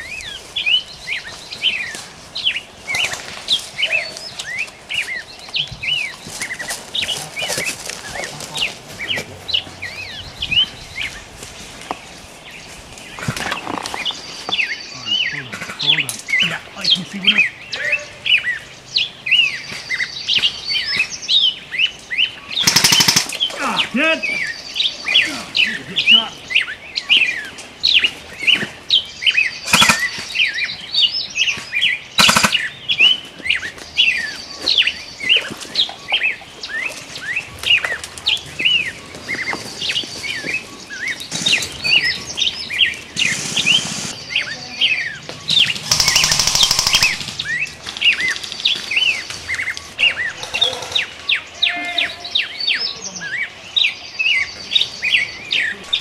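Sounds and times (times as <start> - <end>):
birds chirping: 0.0 - 56.0
rattling burst: 32.2 - 32.6.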